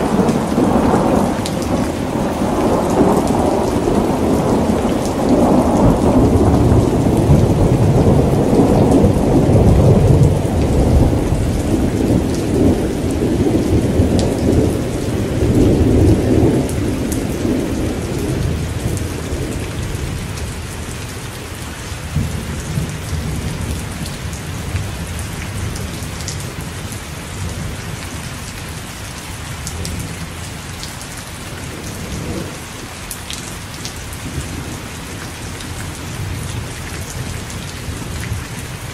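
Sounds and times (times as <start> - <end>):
thunder rolling: 0.0 - 20.2
heavy rain: 0.0 - 38.9.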